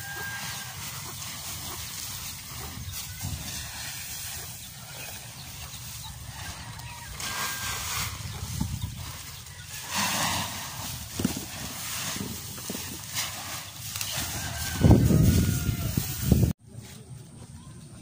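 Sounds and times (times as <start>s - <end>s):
faint high calls: 6.0s - 8.3s.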